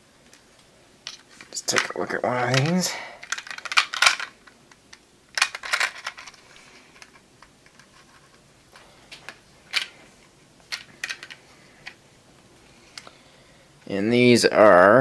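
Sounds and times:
small parts clicking and rattling: 0:00.3 - 0:10.0, 0:10.7 - 0:12.0.

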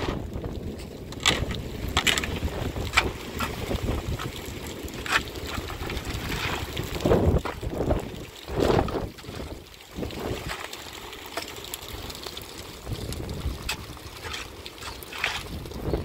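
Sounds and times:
wind rumble on microphone: 0:00.0 - 0:10.6, 0:12.8 - 0:14.4, 0:15.1 - 0:16.0
metal shovel scraping stones: 0:00.8 - 0:06.8, 0:13.6 - 0:15.6.

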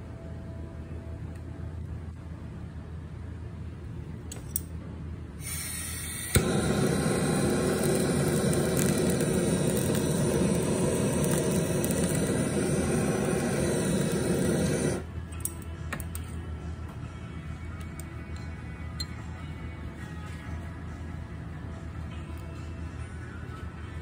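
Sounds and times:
blowtorch flame hissing: 0:05.4 - 0:15.1
gas hissing: 0:05.4 - 0:15.1
blowtorch ignition click: 0:05.4 - 0:15.5.

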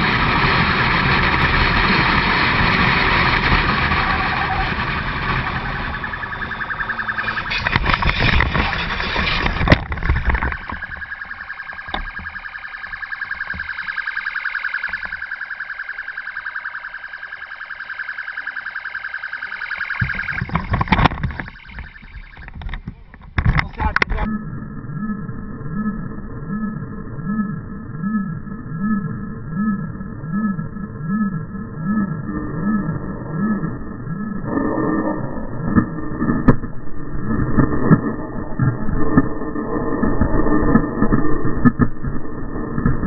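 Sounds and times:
wind rush: 0:00.0 - 0:13.6
motorcycle engine at speed: 0:00.0 - 0:22.9
rapidly pulsing alarm tone: 0:00.0 - 0:22.9, 0:23.5 - 0:43.0.

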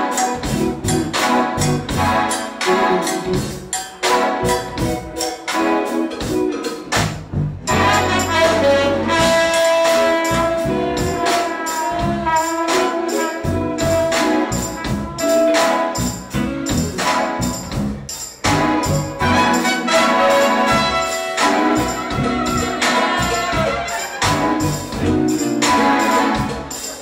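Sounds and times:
trumpet: 0:00.0 - 0:06.0, 0:07.7 - 0:17.6, 0:18.4 - 0:27.0
electric bass: 0:00.0 - 0:26.8
electric guitar: 0:00.0 - 0:27.0
keyboard: 0:00.0 - 0:27.0
saxophone: 0:07.7 - 0:15.9, 0:18.6 - 0:27.0
drum beat: 0:16.3 - 0:27.0.

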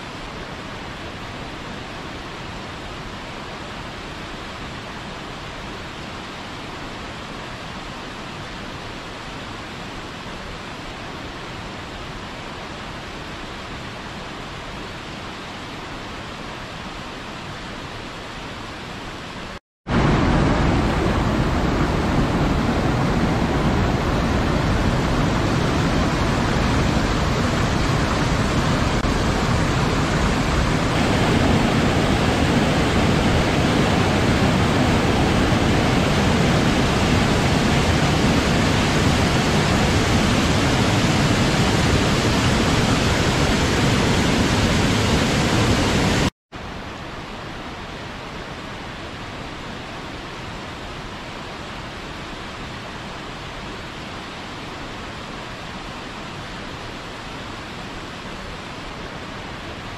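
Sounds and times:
waterfall rushing: 0:19.9 - 0:46.3.

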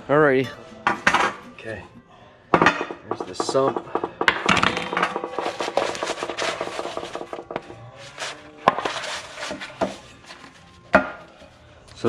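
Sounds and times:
sharp knocks: 0:02.6 - 0:05.8
gasket sheet crackling and rustling: 0:04.9 - 0:10.6.

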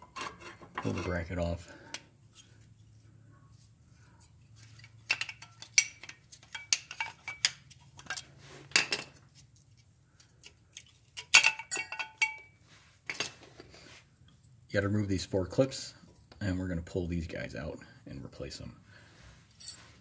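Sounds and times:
metal bracket clinking: 0:11.2 - 0:12.5.

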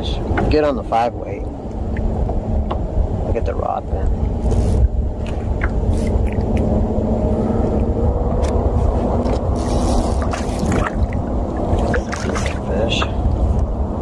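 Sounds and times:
faint hum: 0:00.0 - 0:14.0
steady low rumble: 0:00.0 - 0:14.0
knocks and water splashes: 0:05.2 - 0:06.7, 0:10.2 - 0:13.5.

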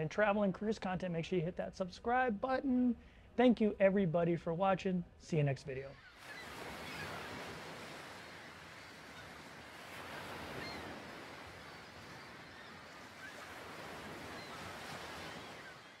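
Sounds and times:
ocean waves rushing: 0:05.9 - 0:16.0.

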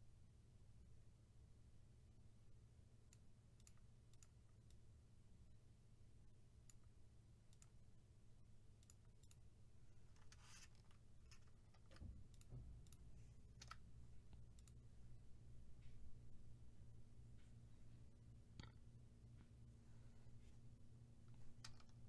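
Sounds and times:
low steady hum: 0:00.0 - 0:22.0
keyboard and mouse clicks: 0:03.1 - 0:04.8, 0:10.1 - 0:14.8, 0:21.3 - 0:22.0.

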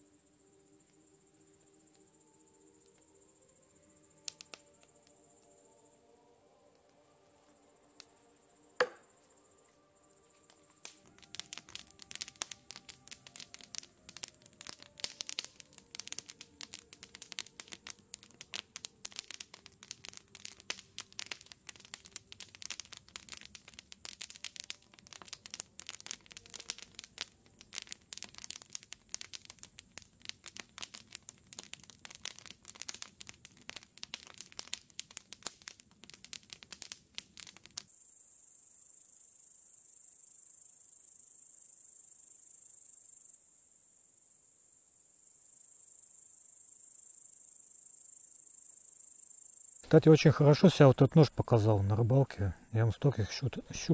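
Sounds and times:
irregular crackling and crinkling: 0:04.2 - 0:05.5, 0:09.7 - 0:37.9, 0:49.8 - 0:53.9.

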